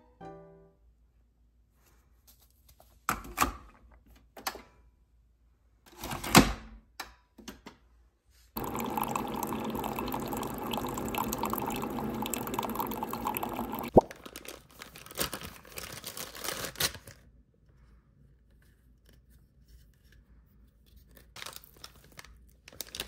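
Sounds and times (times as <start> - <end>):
coffee running into ceramic mug: 8.6 - 14.2.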